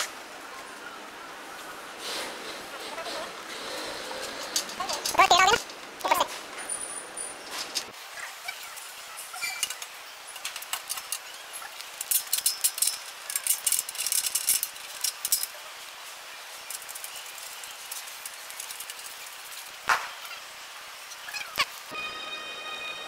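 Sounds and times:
metal hardware clinking: 12.0s - 15.6s.

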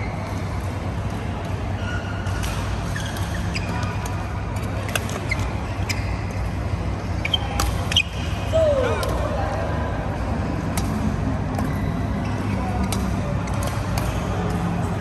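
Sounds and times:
low hum of hall: 0.0s - 15.0s
shoes squeaking on court floor: 1.6s - 8.5s
racket hitting shuttlecock: 12.8s - 14.6s.

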